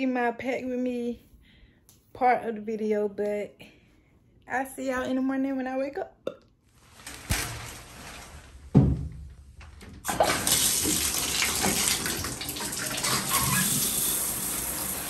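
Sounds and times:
shower water running: 6.9 - 8.9, 9.6 - 15.0.

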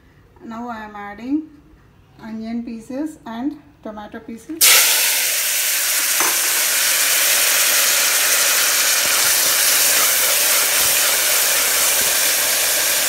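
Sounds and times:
onion sizzling in oil: 4.6 - 13.0.

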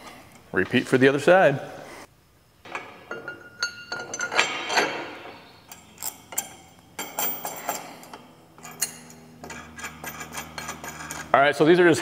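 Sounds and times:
metal clinks and clicks: 5.7 - 11.3.

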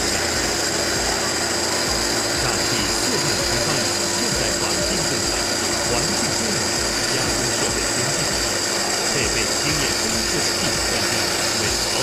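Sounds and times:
machine spindle whining: 0.0 - 12.0
water coolant spray rushing: 0.0 - 12.0.

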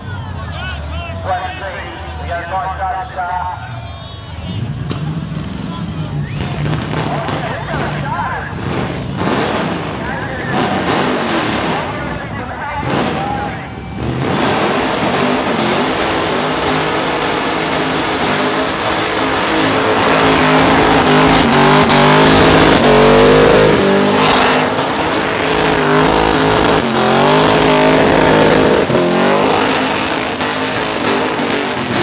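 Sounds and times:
car engine revving hard: 6.4 - 32.0.

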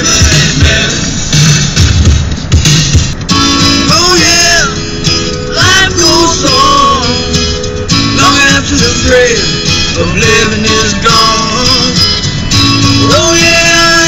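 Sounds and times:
pop-rock song: 0.0 - 14.0
strummed acoustic guitar: 0.0 - 14.0
person singing: 5.5 - 7.3, 8.2 - 12.0.

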